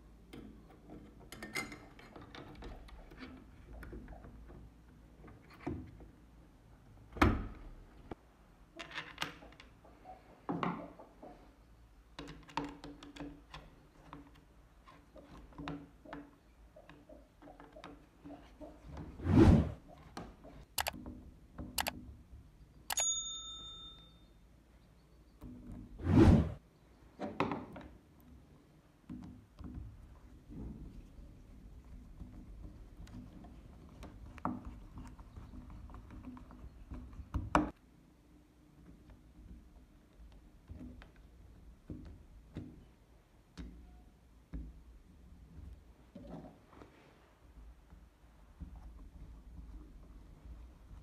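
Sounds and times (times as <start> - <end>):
short chime: 23.0 - 24.3.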